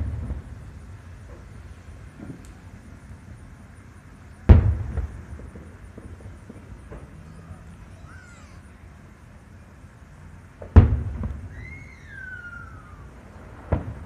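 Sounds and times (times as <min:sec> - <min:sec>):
firework shells booming: 0:00.0 - 0:03.4, 0:04.3 - 0:07.9, 0:10.6 - 0:14.0
descending whistle tone: 0:11.5 - 0:13.2.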